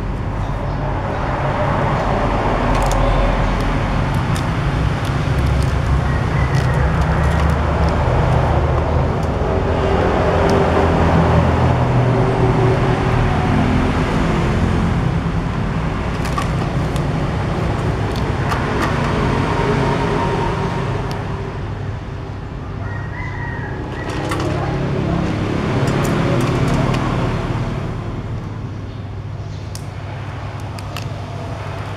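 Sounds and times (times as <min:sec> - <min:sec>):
traffic rumble: 0:00.0 - 0:31.9.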